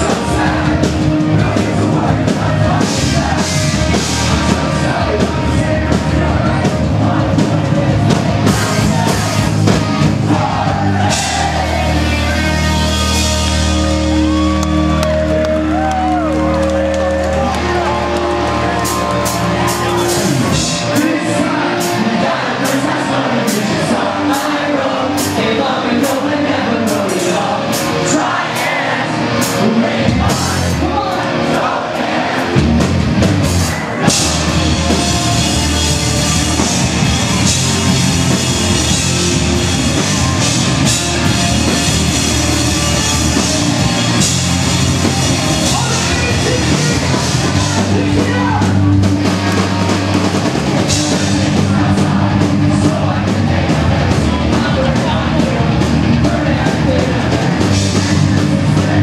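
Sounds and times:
sung and shouted vocals: 0.0s - 32.7s, 50.8s - 59.0s
pop-punk band playing live: 0.0s - 59.0s.

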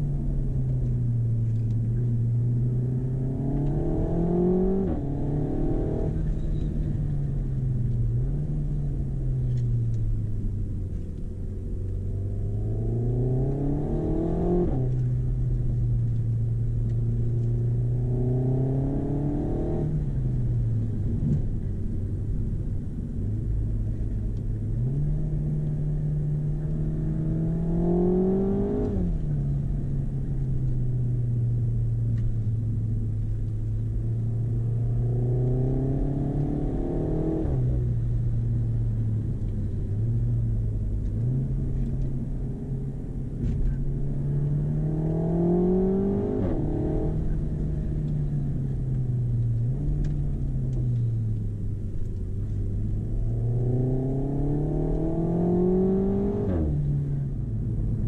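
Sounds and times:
car engine revving through gears: 0.8s - 7.4s, 12.0s - 15.5s, 16.8s - 21.5s, 24.7s - 29.9s, 33.9s - 39.8s, 40.8s - 58.0s.

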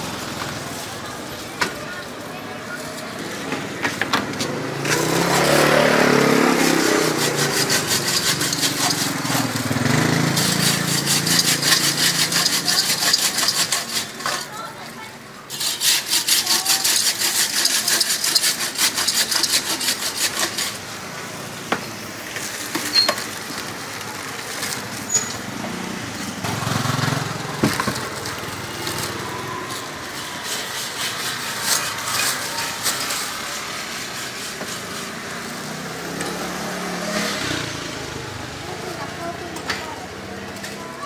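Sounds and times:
street traffic noise: 0.0s - 41.0s
rhythmic scraping strokes: 4.9s - 21.0s, 27.7s - 36.2s.

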